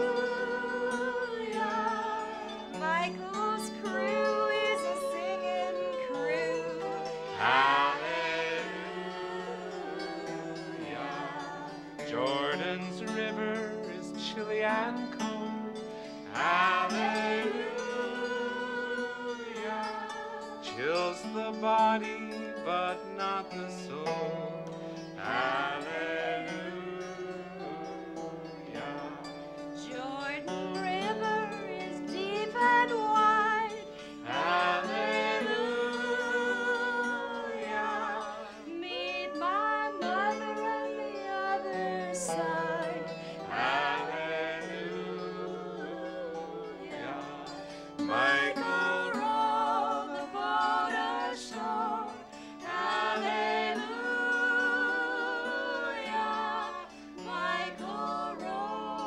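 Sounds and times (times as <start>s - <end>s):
group singing folk song: 0.0s - 59.0s
psaltery strings ringing: 0.0s - 59.0s.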